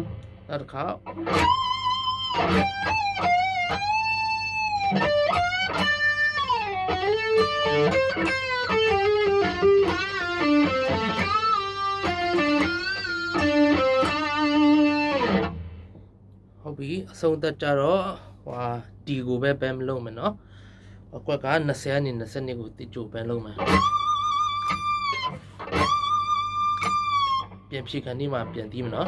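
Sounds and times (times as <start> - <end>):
electric guitar solo: 0.0 - 15.8, 23.6 - 27.7.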